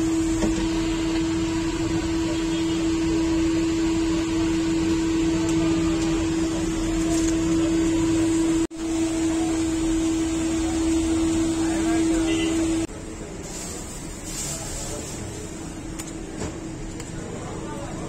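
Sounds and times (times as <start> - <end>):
machine hum: 0.0 - 12.9.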